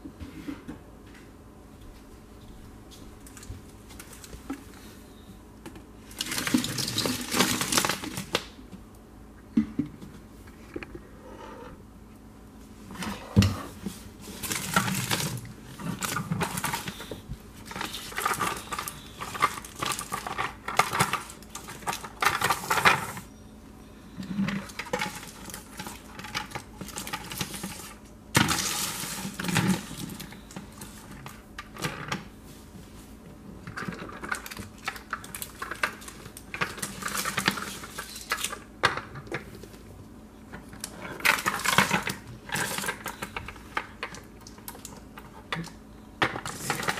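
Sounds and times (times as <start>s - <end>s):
candy wrappers rustling: 6.0s - 8.4s, 14.1s - 23.3s, 33.7s - 38.7s, 40.7s - 45.1s, 46.4s - 46.9s
plastic toy trucks clattering: 45.5s - 46.9s.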